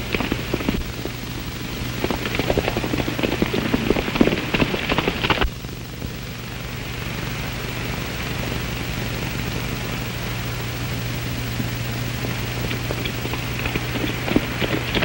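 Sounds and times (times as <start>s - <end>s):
horses' hooves galloping on dirt: 0.0s - 5.6s, 11.1s - 15.0s
film soundtrack hiss and hum: 0.0s - 15.0s.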